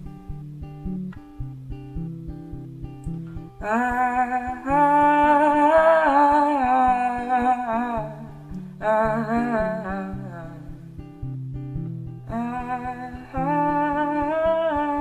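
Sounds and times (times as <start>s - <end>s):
acoustic guitar: 0.0s - 15.0s
person singing: 3.6s - 10.8s, 12.3s - 15.0s.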